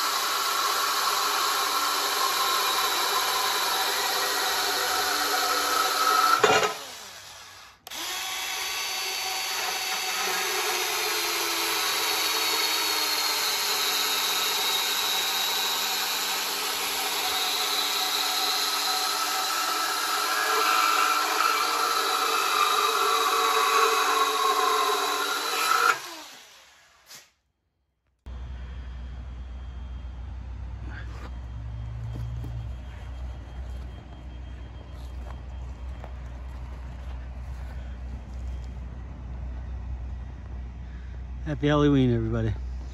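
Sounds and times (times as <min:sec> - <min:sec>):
band saw cutting steel: 0:00.0 - 0:27.3.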